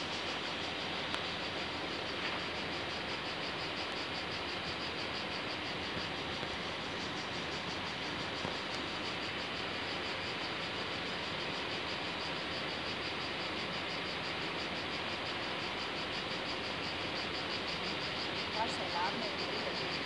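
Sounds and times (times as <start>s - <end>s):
constant hiss: 0.0s - 20.0s
insects chirring: 0.0s - 20.0s.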